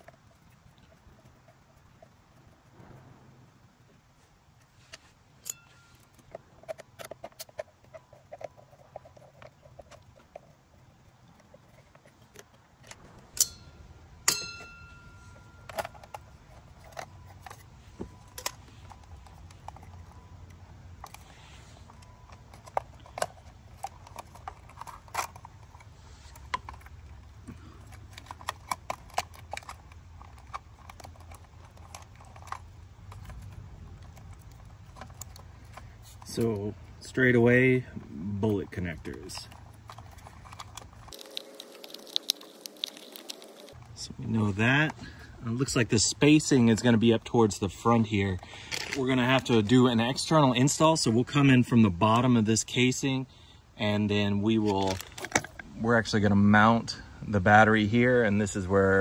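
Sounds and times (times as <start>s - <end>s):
sharp metallic clinks: 5.4s - 6.2s, 13.3s - 16.5s
small clicks and rattles of tools: 48.4s - 49.6s.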